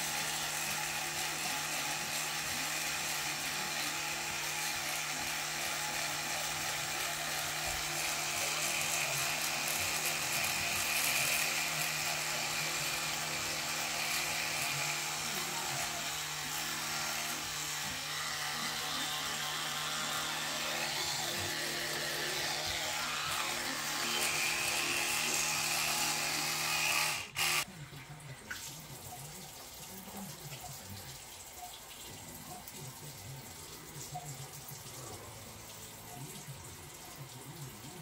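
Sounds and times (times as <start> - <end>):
electric toothbrush buzzing: 0.0 - 27.7.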